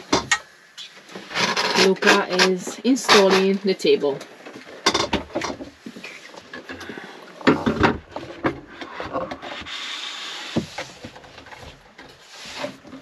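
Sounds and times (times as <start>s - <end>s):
table knocks and clunks: 4.8s - 5.7s, 7.4s - 9.4s.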